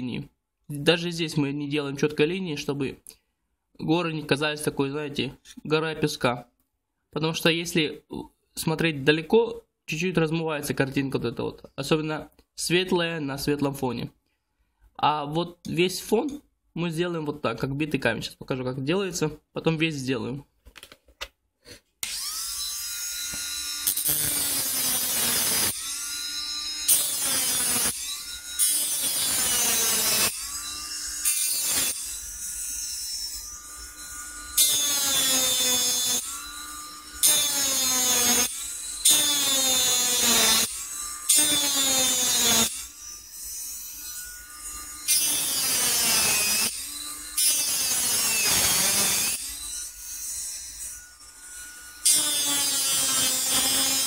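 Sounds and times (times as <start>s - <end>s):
engraving tool grinding whine: 22.0s - 54.0s.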